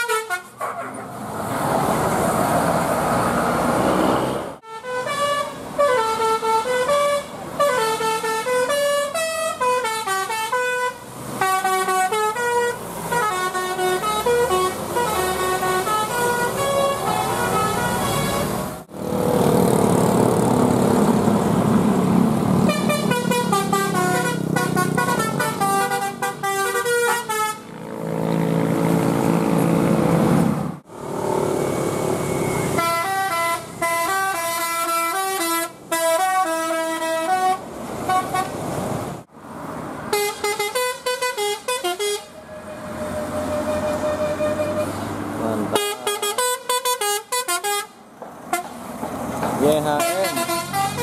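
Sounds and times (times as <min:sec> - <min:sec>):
multi-tone musical bus horns: 0:00.0 - 0:00.7, 0:04.6 - 0:18.8, 0:22.5 - 0:28.0, 0:32.6 - 0:38.6, 0:40.1 - 0:48.8, 0:49.7 - 0:51.0
bus engine running: 0:05.4 - 0:39.4.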